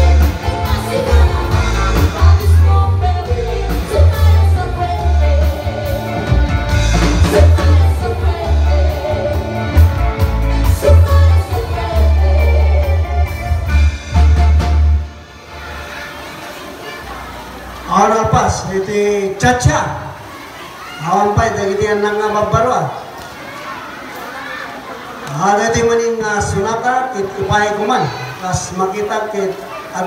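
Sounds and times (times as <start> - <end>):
women singing into microphones: 0.0 - 13.8
heavy amplified bass: 0.0 - 15.9
live band music: 0.0 - 18.7.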